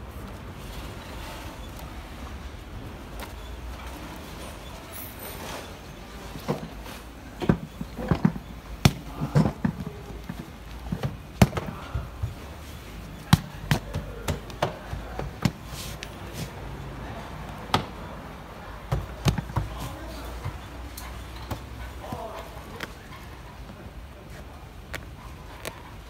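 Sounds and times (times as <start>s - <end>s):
material rustling: 15.3s - 16.6s.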